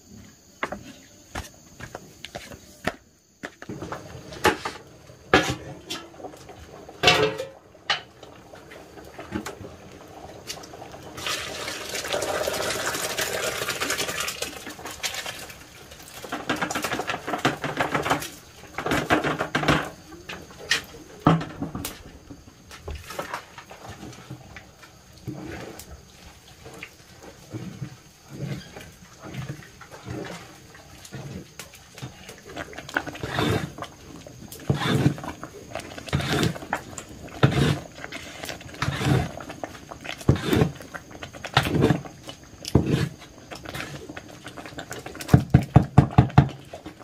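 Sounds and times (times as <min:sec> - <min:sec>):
water pouring into metal pot: 0:05.9 - 0:17.4
metal lid and pot clanking: 0:07.0 - 0:08.1.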